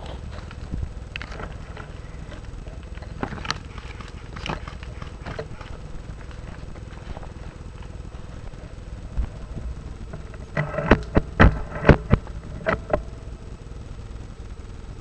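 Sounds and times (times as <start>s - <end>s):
microphone handling rumble: 0.0s - 1.6s.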